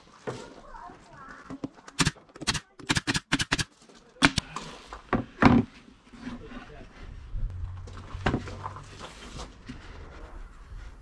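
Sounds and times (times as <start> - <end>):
nail gun firing: 2.0 - 4.4.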